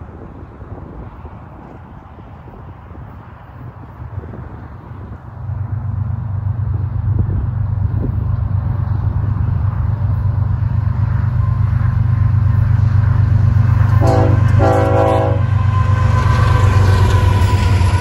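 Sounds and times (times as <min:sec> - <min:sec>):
diesel locomotive engines rumbling: 0:00.0 - 0:18.0
locomotive air horn blasts: 0:14.0 - 0:17.8.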